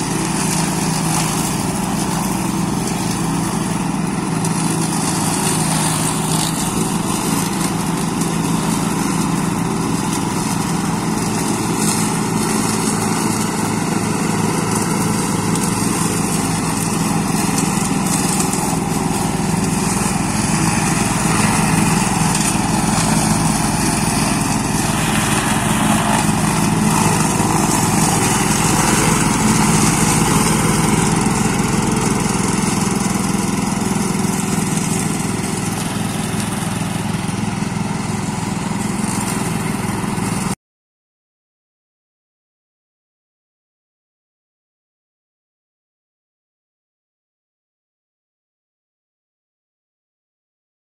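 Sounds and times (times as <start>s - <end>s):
ride-on mower engine running: 0.0s - 40.6s.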